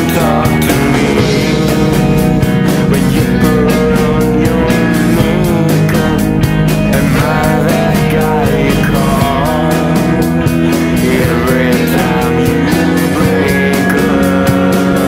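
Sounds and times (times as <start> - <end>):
drums keeping a steady beat: 0.0 - 15.0
electric guitars: 0.0 - 15.0.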